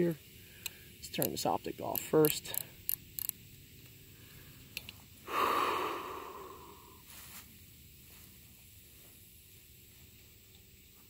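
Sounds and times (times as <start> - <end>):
person breathing out: 5.2 - 7.0.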